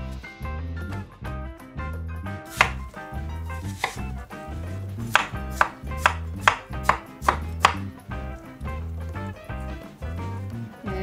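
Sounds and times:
background music with bass line: 0:00.0 - 0:11.0
knife chopping on wooden board: 0:02.5 - 0:07.9.

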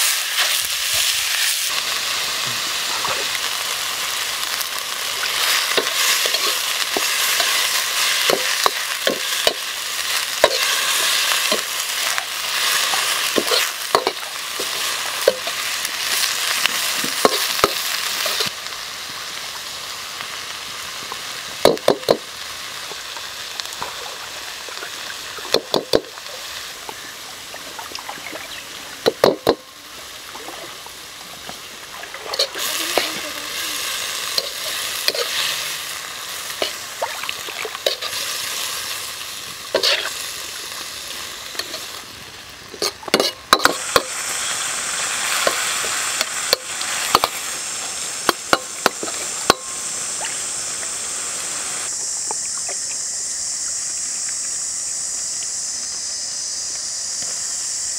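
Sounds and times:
meat sizzling in a wok: 0:00.0 - 0:57.9
metal ladle scraping: 0:32.2 - 0:33.2, 0:34.3 - 0:35.6, 0:39.7 - 0:40.2, 0:42.7 - 0:44.1.

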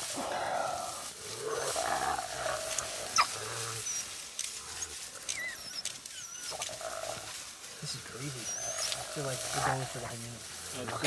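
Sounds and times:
animals growling harshly: 0:00.0 - 0:05.8, 0:06.4 - 0:11.0
high squeaks and chirps: 0:03.1 - 0:07.2, 0:08.0 - 0:10.0.

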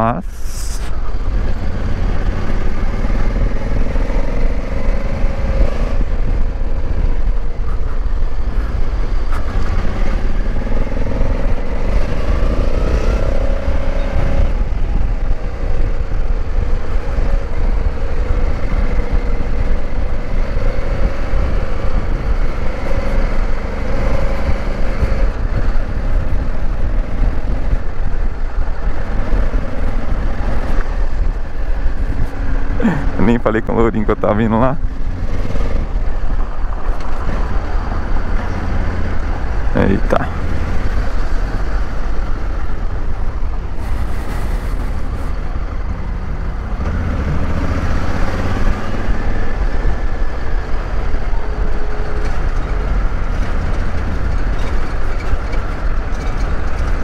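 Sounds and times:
wind rumble on microphone: 0:00.0 - 0:57.0
motorcycle engine revving: 0:43.8 - 0:57.0.

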